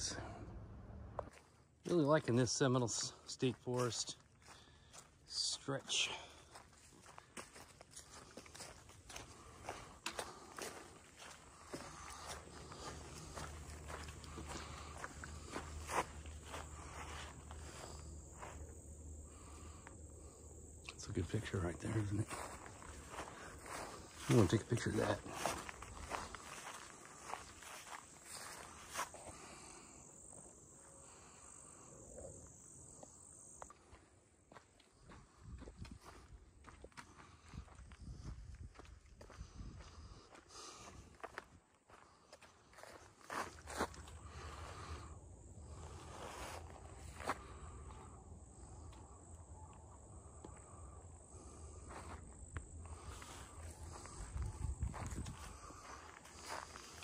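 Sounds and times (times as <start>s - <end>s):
low rumble: 0.0s - 1.3s
insect trill: 2.0s - 36.3s, 37.2s - 57.0s
insect buzzing: 9.4s - 21.0s, 25.5s - 33.8s.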